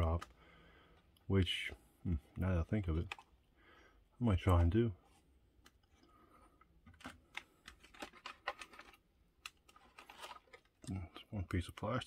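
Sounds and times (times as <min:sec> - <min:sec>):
plastic packaging clicks: 0:06.9 - 0:10.9.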